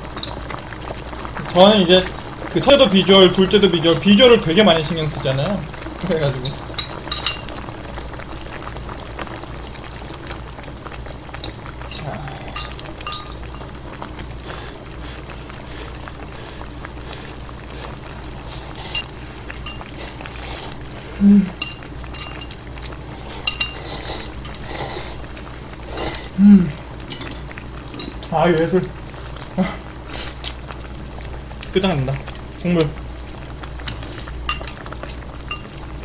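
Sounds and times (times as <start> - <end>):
slurping noodles: 14.4 - 19.0, 19.9 - 21.6, 23.1 - 26.8
person humming mm: 21.2 - 21.6, 26.0 - 26.8, 29.6 - 29.8.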